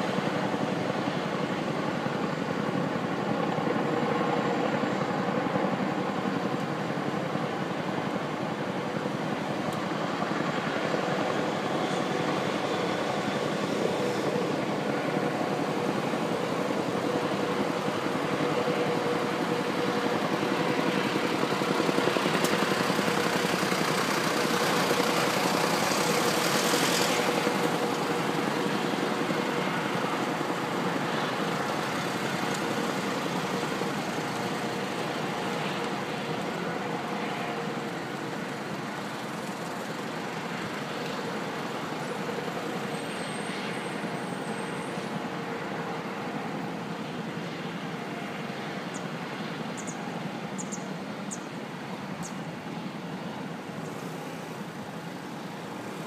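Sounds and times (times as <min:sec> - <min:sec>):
faint turbine whine: 0:00.0 - 0:56.0
helicopter rotor drone: 0:00.0 - 0:56.0.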